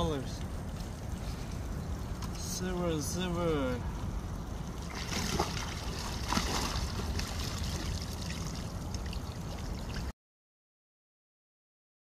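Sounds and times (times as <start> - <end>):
river water flowing: 0.0 - 10.1.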